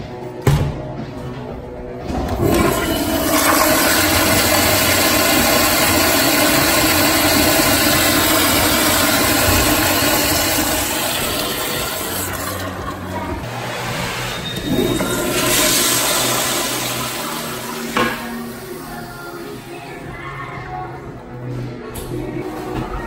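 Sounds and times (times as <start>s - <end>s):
toilet flushing: 2.1s - 19.2s.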